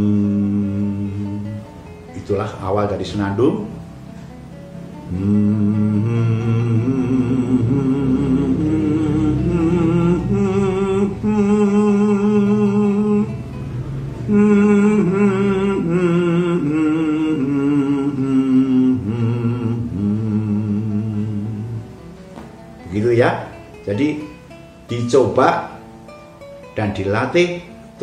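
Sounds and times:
man humming with vibrato: 0.0 - 1.7, 5.0 - 22.0.

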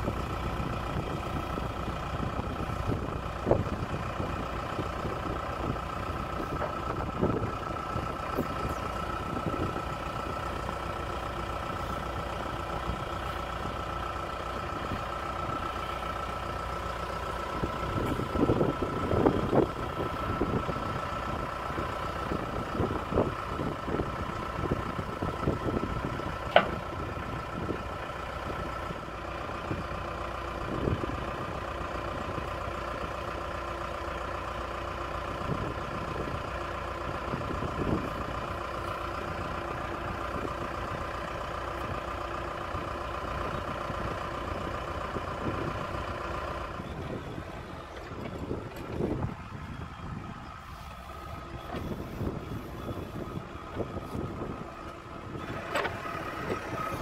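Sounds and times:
diesel engine idling: 0.0 - 57.0.

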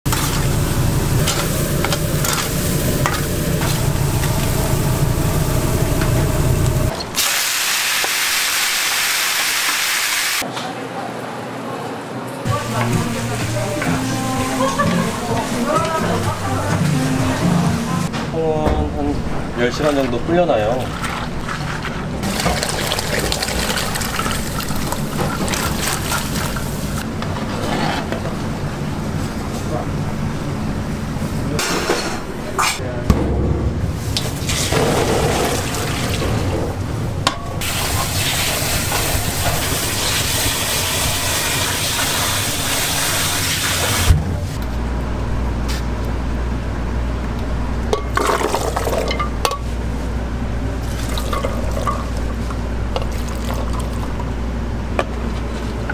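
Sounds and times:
steady low hum: 0.1 - 7.0, 28.2 - 37.6
fire rumbling: 0.1 - 7.2, 33.1 - 44.8
chicken sizzling: 0.1 - 10.4, 37.6 - 44.1.

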